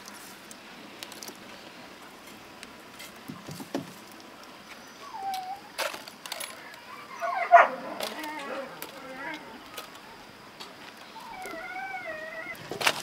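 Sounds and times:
dog whining: 0:05.0 - 0:05.7, 0:11.2 - 0:12.6.

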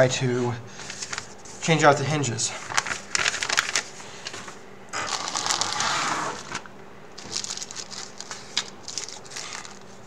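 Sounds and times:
plastic bags crinkling: 0:02.7 - 0:04.4, 0:05.0 - 0:10.0.

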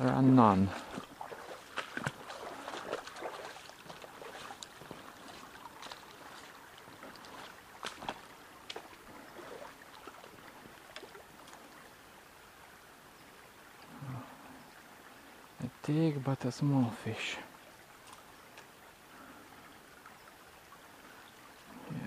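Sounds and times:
water splashes and clicks: 0:00.0 - 0:11.9, 0:18.0 - 0:18.8
stream water trickling: 0:00.0 - 0:22.0.

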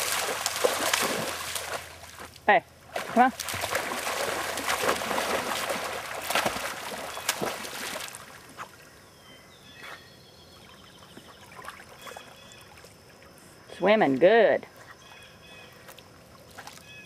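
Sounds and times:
dog splashing through water: 0:00.0 - 0:02.3, 0:02.9 - 0:08.7.

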